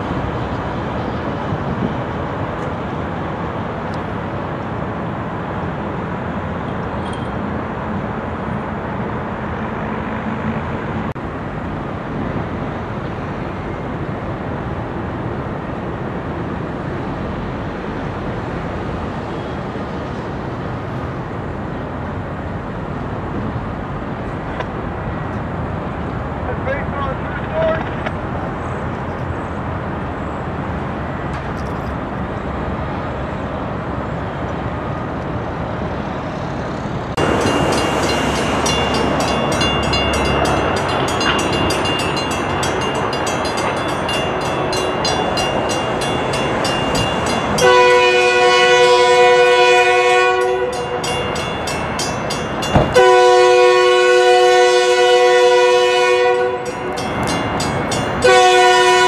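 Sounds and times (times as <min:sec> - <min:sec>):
locomotive engine rumble: 0:00.0 - 0:59.0
crossing bell ringing: 0:37.2 - 0:59.0
locomotive horn blasts: 0:47.6 - 0:51.1, 0:52.8 - 0:56.9, 0:58.2 - 0:59.0.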